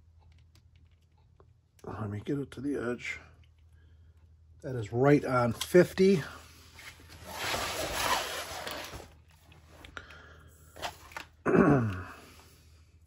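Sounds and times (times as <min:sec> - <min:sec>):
plastic film crinkling: 0:07.0 - 0:09.3
person grunting: 0:11.5 - 0:12.3.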